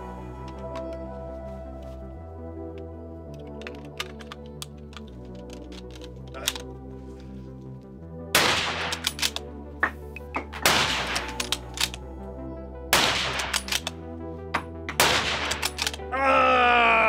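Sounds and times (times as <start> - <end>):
background music: 0.0 - 17.0
rifle bolt clacks: 3.3 - 6.7, 8.4 - 12.0, 13.0 - 14.0, 14.6 - 16.1
rifle shots: 8.3 - 9.4, 10.6 - 11.9, 12.9 - 13.9, 14.9 - 16.0.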